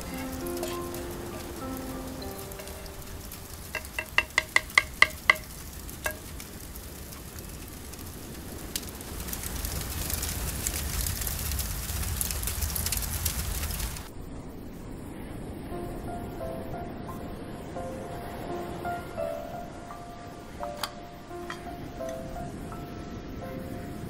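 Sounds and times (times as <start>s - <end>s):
crackling sizzle: 0.0s - 24.0s
spoon knocking clay pot: 3.8s - 5.5s.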